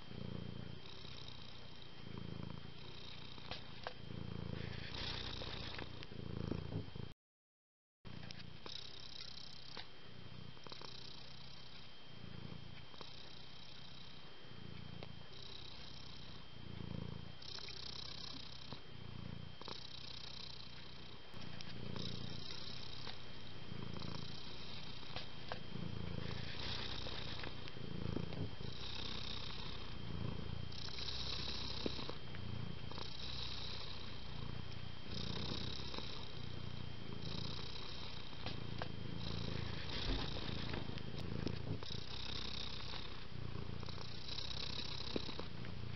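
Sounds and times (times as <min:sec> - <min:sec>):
cat purring: 0:00.0 - 0:07.2, 0:08.1 - 0:45.9.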